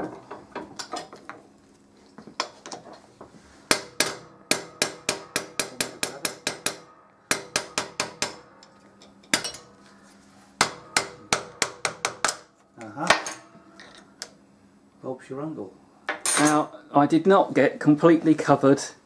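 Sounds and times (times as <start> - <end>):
hammer tapping metal: 3.7 - 9.7, 10.6 - 12.5.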